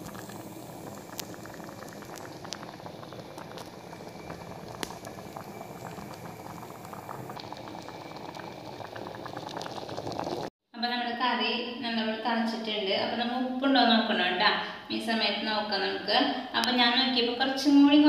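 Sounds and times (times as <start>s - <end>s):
thick curry bubbling and popping: 0.0s - 10.5s.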